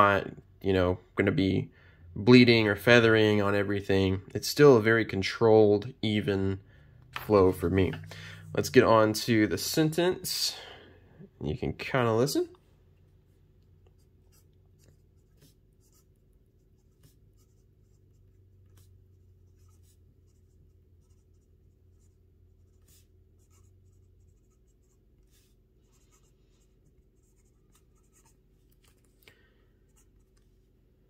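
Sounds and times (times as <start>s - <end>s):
fountain pen scratching paper: 14.0s - 29.1s.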